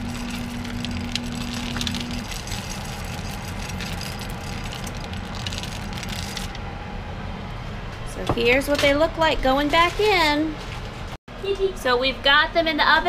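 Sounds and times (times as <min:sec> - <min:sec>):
low hum: 0:00.0 - 0:09.8.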